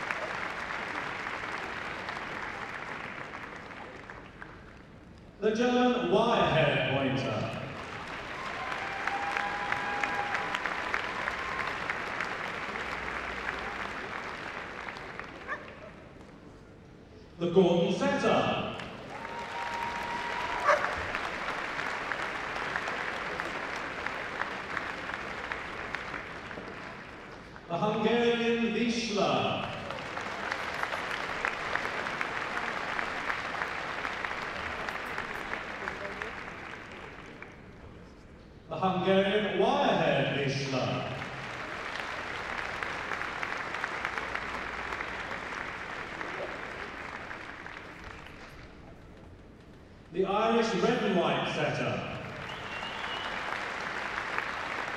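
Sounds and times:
audience applauding: 0:00.0 - 0:05.0, 0:07.5 - 0:16.2, 0:18.7 - 0:27.7, 0:29.4 - 0:37.9, 0:40.9 - 0:49.6, 0:52.2 - 0:54.9.

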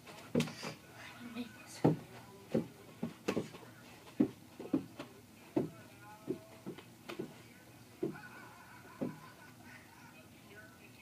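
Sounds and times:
footsteps: 0:01.6 - 0:09.4
rubber ball bouncing on carpet: 0:01.8 - 0:07.4.

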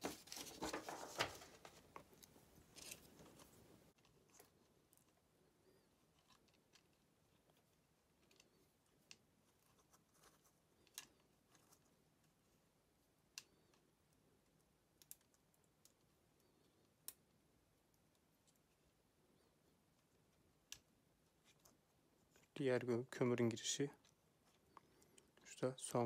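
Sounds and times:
faint plastic clicks and taps: 0:19.9 - 0:22.5.

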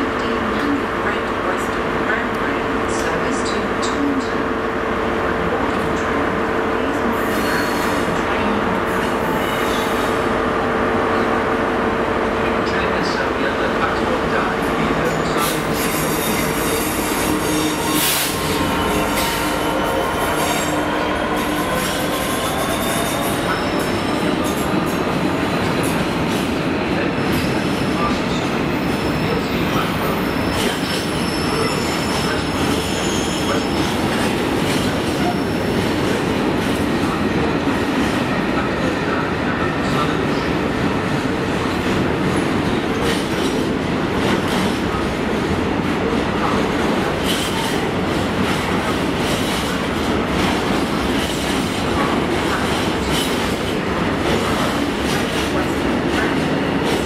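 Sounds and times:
train wheels rumbling on rails: 0:05.2 - 0:57.0
high wheel squeal: 0:15.4 - 0:24.4.

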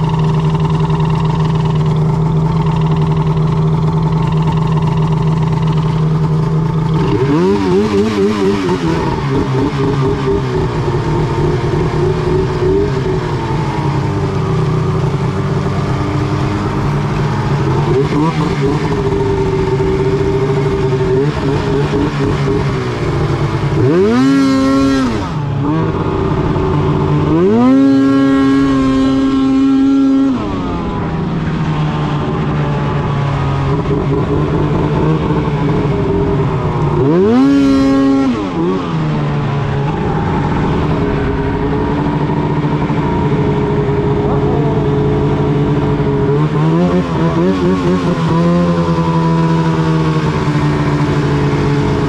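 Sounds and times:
snowmobile engine revving: 0:00.0 - 0:52.0.

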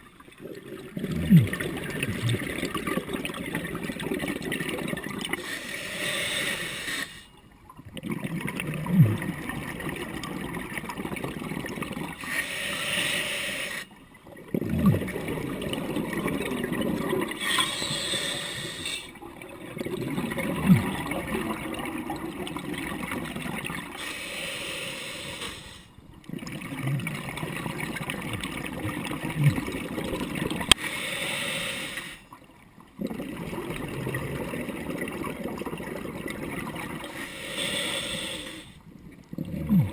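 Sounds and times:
exhaled bubbles rumbling: 0:00.0 - 0:05.4, 0:07.8 - 0:12.2, 0:14.3 - 0:17.4, 0:19.1 - 0:24.0, 0:26.2 - 0:30.8, 0:32.9 - 0:37.1, 0:38.9 - 0:39.9
regulator inhale hiss: 0:05.4 - 0:07.3, 0:12.2 - 0:13.9, 0:17.4 - 0:19.1, 0:24.0 - 0:25.9, 0:30.7 - 0:32.3, 0:37.1 - 0:38.8.

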